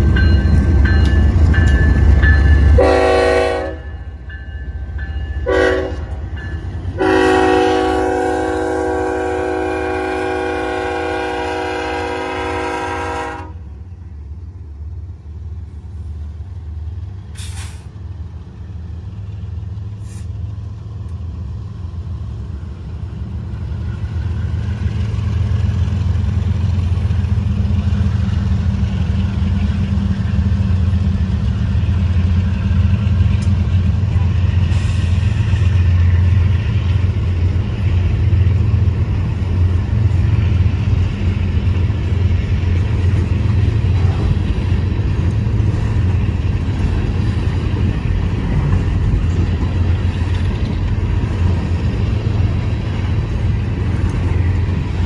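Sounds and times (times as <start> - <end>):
diesel locomotive rumble: 0.0 - 55.0
locomotive air horn blasts: 2.8 - 3.9, 5.4 - 6.1, 7.0 - 13.7.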